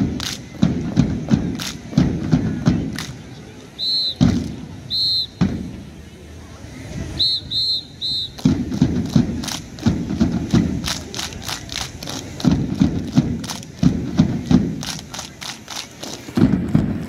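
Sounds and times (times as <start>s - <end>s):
rhythmic thuds: 0.0s - 6.0s, 8.0s - 17.0s
whistle blasts: 3.8s - 5.7s, 7.1s - 8.8s.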